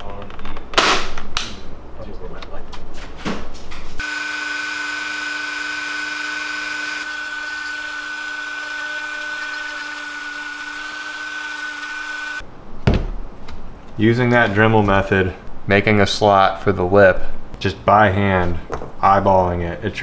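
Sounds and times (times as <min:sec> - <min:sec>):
rotary tool whining: 0:04.0 - 0:12.4.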